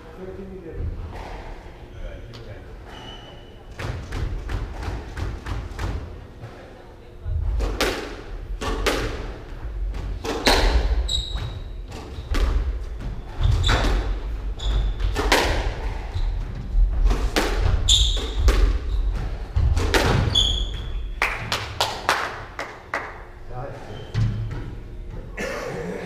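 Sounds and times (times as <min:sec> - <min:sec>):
shoes squeaking on wooden floor: 0:02.8 - 0:03.8, 0:10.2 - 0:21.2, 0:23.8 - 0:25.4
squash ball hitting walls: 0:03.7 - 0:06.2, 0:07.3 - 0:23.2.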